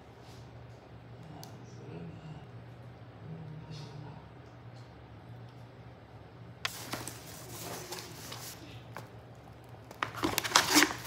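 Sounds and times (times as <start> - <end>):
faint low hum: 0.0 - 11.0
plastic packaging crinkling: 6.7 - 8.7, 9.7 - 11.0.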